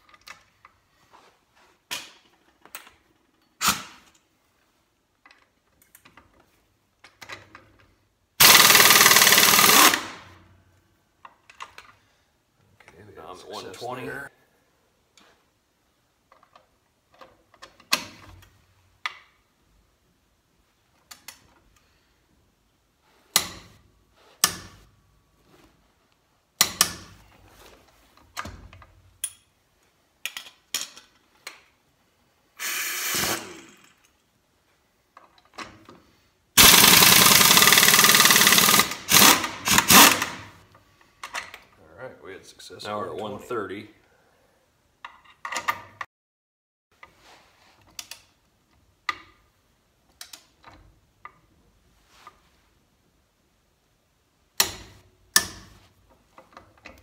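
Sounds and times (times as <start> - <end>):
air impact wrench hammering: 8.4 - 10.3, 36.6 - 40.6.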